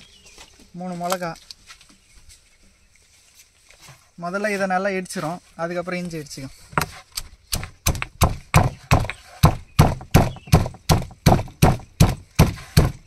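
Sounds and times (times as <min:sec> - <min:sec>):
stone pestle pounding in mortar: 0:07.6 - 0:13.0.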